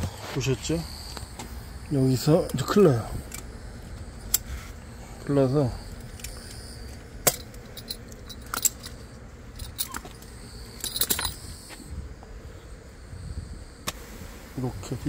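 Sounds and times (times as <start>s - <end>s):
metal buckle clinking: 6.0s - 11.4s.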